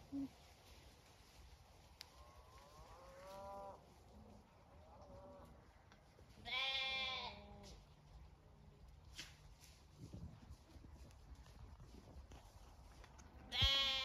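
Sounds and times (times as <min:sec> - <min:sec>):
lambs bleating: 0:06.4 - 0:07.6, 0:13.5 - 0:14.0.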